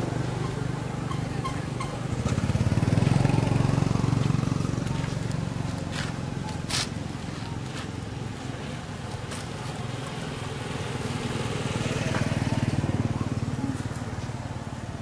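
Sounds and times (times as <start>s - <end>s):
motorcycle engine running: 0.0s - 15.0s.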